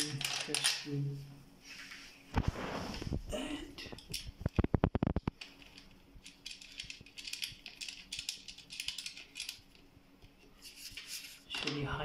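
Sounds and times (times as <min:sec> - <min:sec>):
scratching and rubbing: 0:01.6 - 0:03.3, 0:10.4 - 0:11.9.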